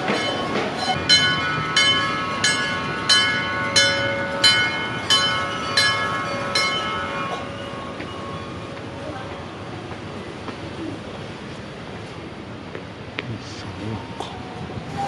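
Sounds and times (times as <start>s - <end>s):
level-crossing alarm bell ringing: 0.0s - 9.7s.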